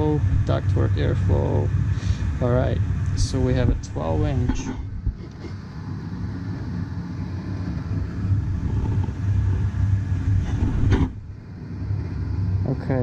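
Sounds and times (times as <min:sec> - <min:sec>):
furnace blower rumbling: 0:00.0 - 0:13.0.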